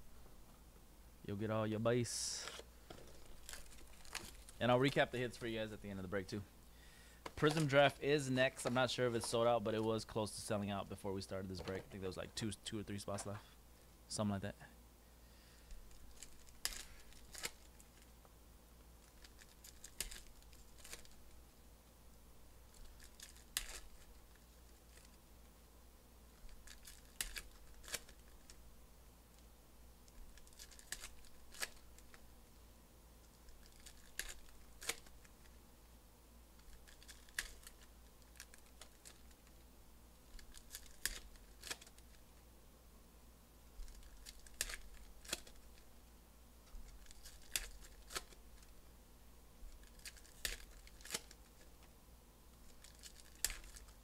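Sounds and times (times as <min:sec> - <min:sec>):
faint low hum: 0:00.0 - 0:54.0
foil wrappers tearing and crinkling: 0:03.1 - 0:04.6, 0:15.9 - 0:18.0, 0:19.0 - 0:21.2, 0:22.7 - 0:24.2, 0:26.5 - 0:28.6, 0:30.3 - 0:32.2, 0:33.5 - 0:35.2, 0:36.6 - 0:39.6, 0:40.3 - 0:42.1, 0:43.8 - 0:45.6, 0:46.8 - 0:48.7, 0:49.7 - 0:51.6, 0:52.6 - 0:54.0.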